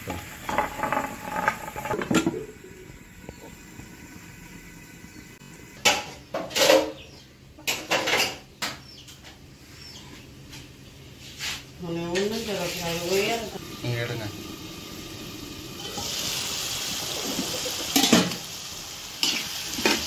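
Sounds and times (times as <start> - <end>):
cooking pan hissing: 0.0 - 6.4, 11.2 - 20.0
pan lid clanking: 17.8 - 18.5.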